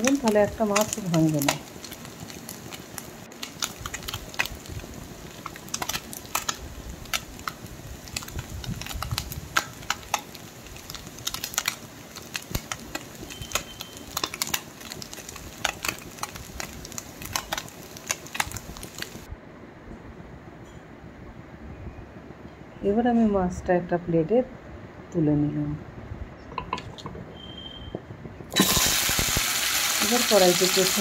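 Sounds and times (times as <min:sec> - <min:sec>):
faint frying sizzle: 0:00.0 - 0:19.3, 0:28.5 - 0:31.0
hot oil crackling and popping: 0:00.0 - 0:19.3, 0:26.6 - 0:31.0.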